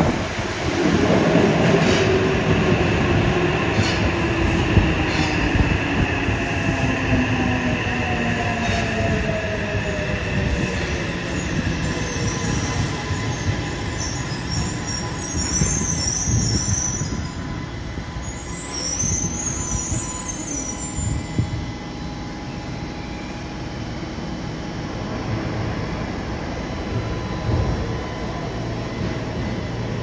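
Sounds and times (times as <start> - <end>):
train running rumble: 0.0 - 18.3
wheel and brake squeals: 10.8 - 17.6, 18.2 - 21.4.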